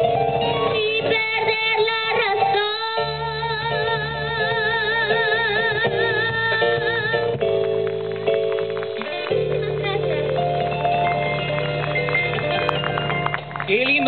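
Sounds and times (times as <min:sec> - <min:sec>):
keyboard: 0:00.0 - 0:14.0
girl singing with vibrato: 0:00.7 - 0:07.3.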